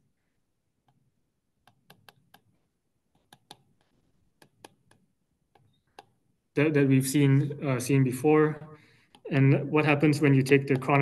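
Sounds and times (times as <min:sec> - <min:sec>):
stylus tapping glass screen: 0:00.8 - 0:06.2.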